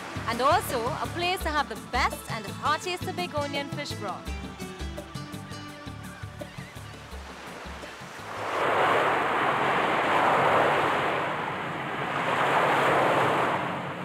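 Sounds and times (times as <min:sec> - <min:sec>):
surf breaking on sand beach: 0:07.3 - 0:14.0.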